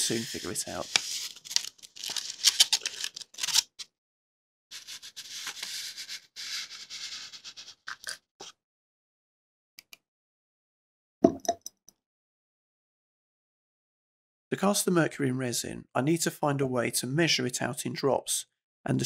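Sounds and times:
paper rustling: 0.0 - 3.8, 4.8 - 7.8
paper scraping on plastic mat: 0.0 - 3.8, 4.7 - 7.9.

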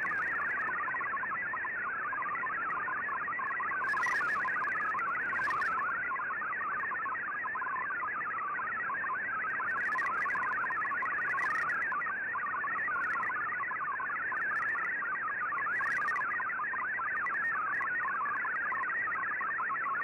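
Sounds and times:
warbling digital data tones: 0.0 - 1.0, 3.5 - 5.9, 9.7 - 11.8.

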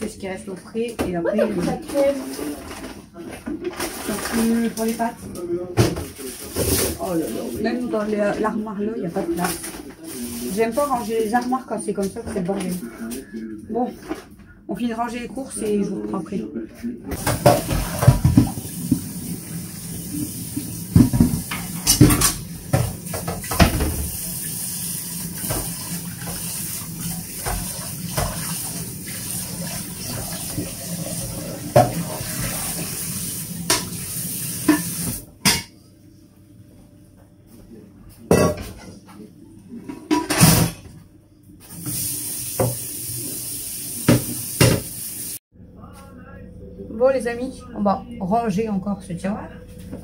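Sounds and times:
dishes clattering: 17.2 - 19.1, 20.6 - 24.2, 30.0 - 32.8, 33.6 - 34.0, 34.6 - 35.8, 38.3 - 39.0, 39.8 - 41.0
running tap water: 17.2 - 35.2, 41.7 - 45.4.

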